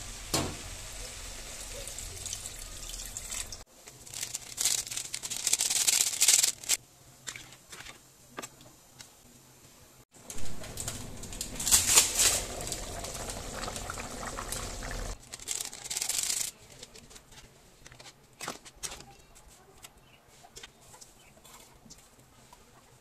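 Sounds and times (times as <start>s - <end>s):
curry boiling and bubbling: 0.0s - 4.4s, 10.2s - 15.3s.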